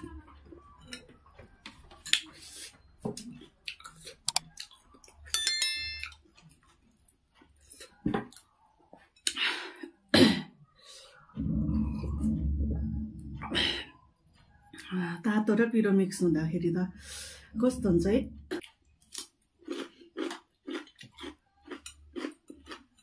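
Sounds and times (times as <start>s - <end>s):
slurping and chewing soup: 1.7s - 5.3s, 6.1s - 10.1s, 18.4s - 23.0s.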